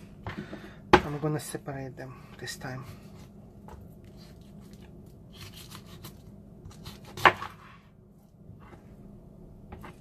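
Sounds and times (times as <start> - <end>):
knife slicing raw meat: 5.3 - 7.6.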